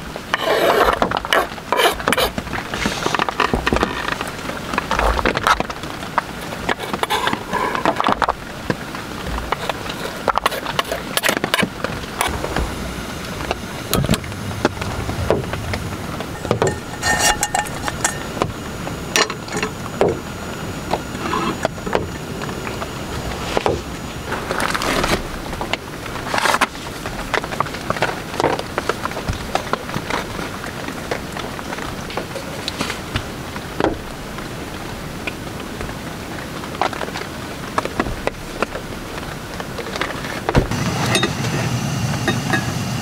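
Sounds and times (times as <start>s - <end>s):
rain drumming on tent: 0.0s - 0.4s, 1.0s - 41.7s
knife scraping chopping board: 0.4s - 4.1s, 6.5s - 8.1s, 9.5s - 12.3s, 16.5s - 18.2s
cookware clinking: 16.4s - 18.4s, 41.1s - 41.4s.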